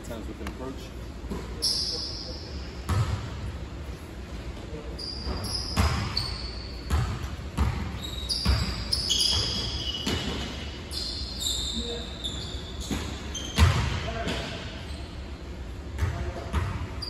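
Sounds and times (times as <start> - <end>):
sneaker soles squeaking: 1.2 - 3.3, 4.5 - 17.0
sneakers thumping on court floor: 2.9 - 3.4, 6.9 - 10.5.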